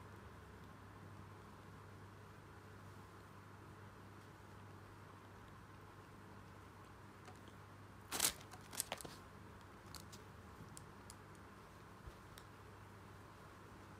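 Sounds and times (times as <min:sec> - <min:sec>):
low steady hum: 0:00.0 - 0:13.9
light clicks and scratches: 0:07.2 - 0:12.5.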